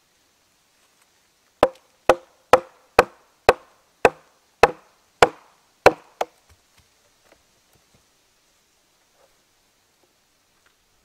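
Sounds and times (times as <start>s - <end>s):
wooden mallet knocking on hatchet: 1.6s - 6.3s.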